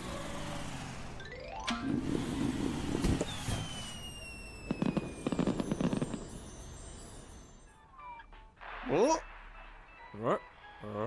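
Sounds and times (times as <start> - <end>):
firework bursts and crackling: 2.0 - 7.4, 8.6 - 10.0
rising rocket whistle: 2.9 - 6.7
long falling whistle: 3.2 - 5.6.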